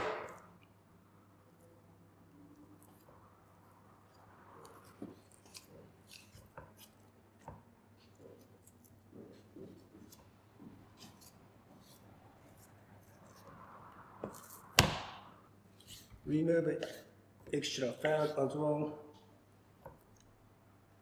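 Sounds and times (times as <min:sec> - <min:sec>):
knife cutting and scraping meat: 0:01.4 - 0:10.3, 0:10.9 - 0:14.8, 0:15.7 - 0:18.4.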